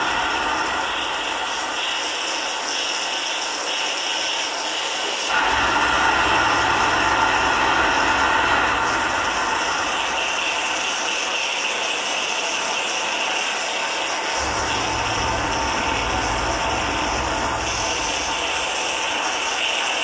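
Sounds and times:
low hum: 5.4s - 10.8s, 14.4s - 19.7s
ratcheting and grinding machine music: 14.4s - 19.4s.

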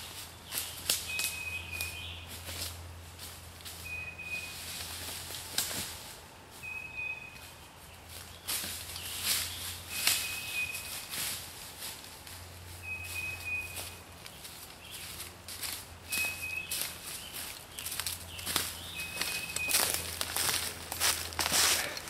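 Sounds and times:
footsteps through dry leaves: 0.0s - 22.0s
bird whistling: 1.1s - 2.2s, 3.8s - 4.6s, 6.6s - 7.6s, 9.8s - 11.0s, 12.8s - 14.0s, 16.1s - 17.4s, 18.8s - 20.0s.

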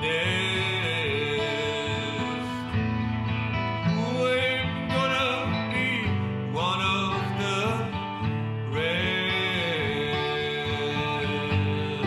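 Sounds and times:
acoustic guitar country song: 0.0s - 12.0s.

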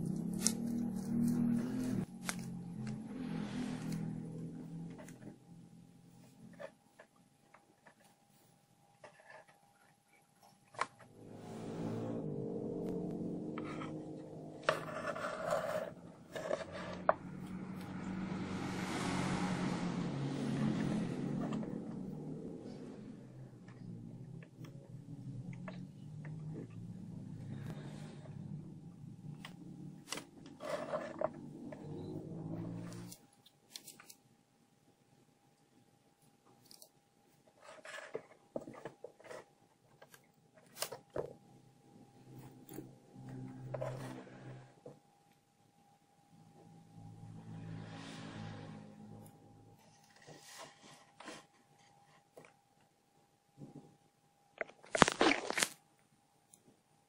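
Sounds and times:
low steady hum: 0.0s - 57.0s
rubbing and scraping on wood: 13.5s - 18.0s, 29.4s - 33.9s.

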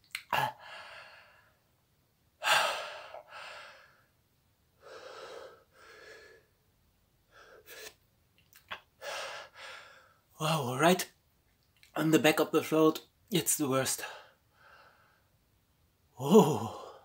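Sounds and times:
man breathing heavily: 0.4s - 1.6s, 2.4s - 4.1s, 4.8s - 6.5s, 9.0s - 10.2s, 14.1s - 15.3s
man gasping: 16.2s - 17.0s.

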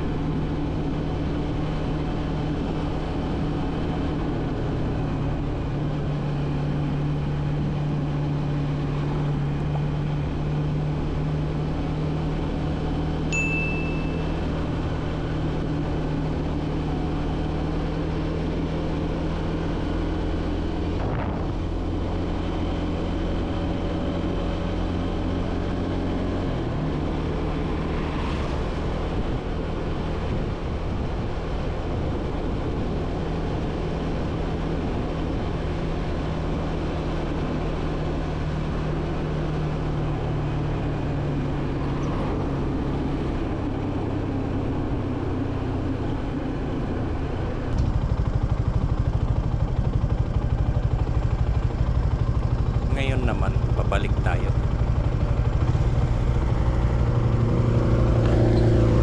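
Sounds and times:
motorcycle engine cruising: 0.0s - 59.0s
wind noise: 21.0s - 21.8s, 28.5s - 32.9s.

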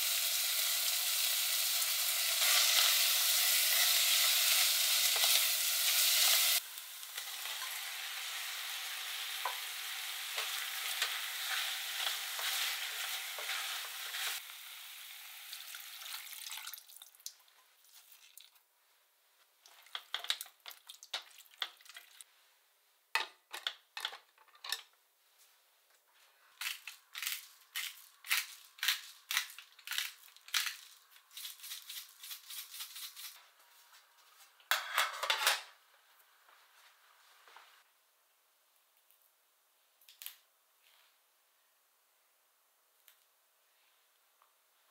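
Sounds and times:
potatoes and onion sizzling: 0.0s - 18.0s, 26.6s - 33.4s
spoon stirring in pot: 10.4s - 14.4s.

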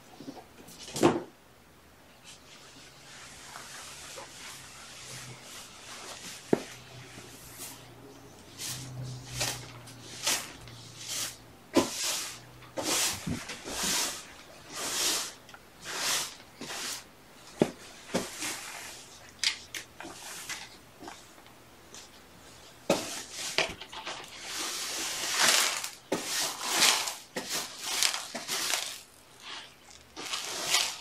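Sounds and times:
broom swishing: 2.2s - 19.3s, 22.0s - 31.0s.

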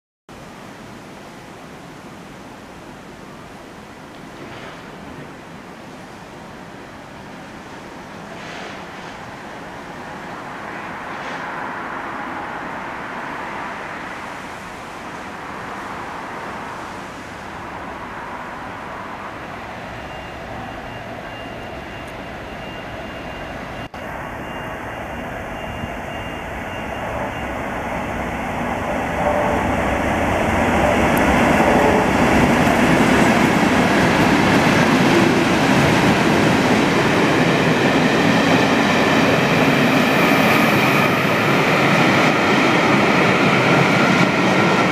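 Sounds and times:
train wheel and rail noise: 0.4s - 44.9s
diesel locomotives passing: 2.9s - 44.9s.

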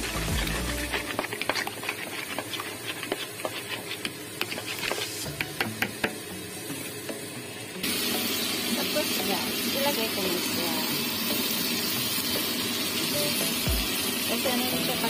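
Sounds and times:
whisk clicking against metal bowl: 0.2s - 5.9s.

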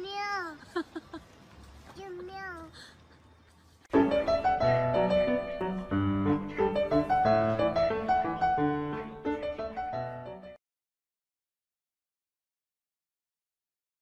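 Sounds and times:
piano music: 3.9s - 10.6s.

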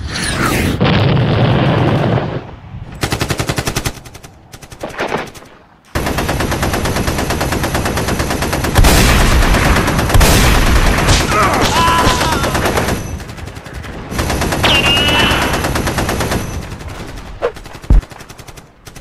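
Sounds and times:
machine-gun fire: 3.0s - 19.0s.

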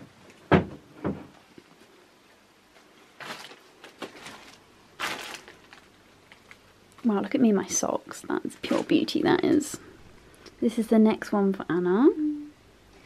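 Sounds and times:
dull knocks: 0.5s - 1.3s
rustling: 1.3s - 7.8s.

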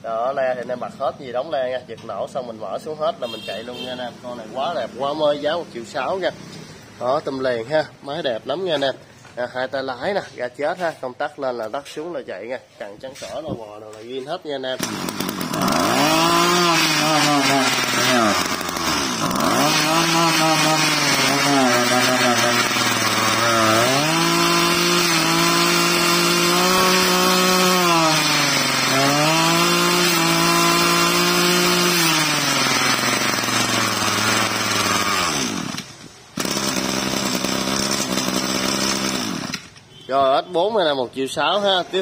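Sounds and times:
brush-cutter engine revving and idling: 3.3s - 7.3s, 14.7s - 39.8s.

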